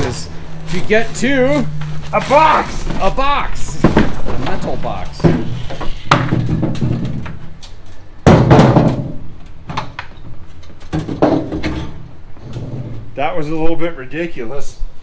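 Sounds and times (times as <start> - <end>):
metal toolbox knocks and clunks: 3.6 - 5.5, 6.1 - 7.4, 8.3 - 10.0, 10.9 - 12.9.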